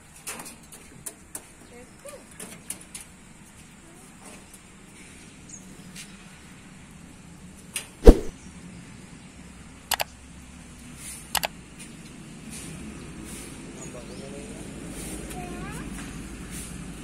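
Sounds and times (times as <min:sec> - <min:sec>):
quick double clicks: 0:08.0 - 0:08.3.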